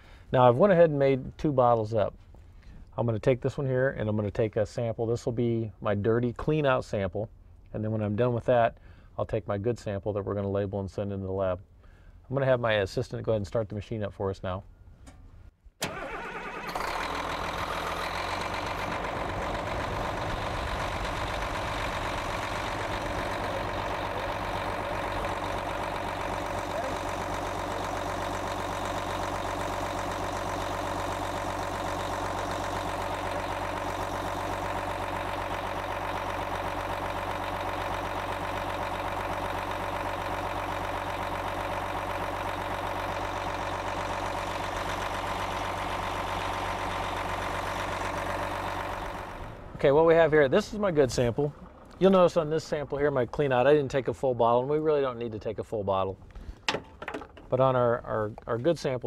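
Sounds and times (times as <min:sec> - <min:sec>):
diesel engine idling: 0:15.9 - 0:55.5.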